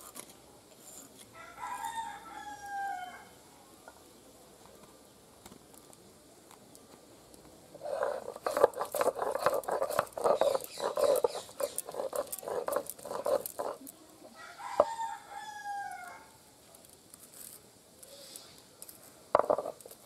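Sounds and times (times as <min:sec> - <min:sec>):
stone roller grinding on stone slab: 0:07.7 - 0:13.9, 0:19.3 - 0:20.0.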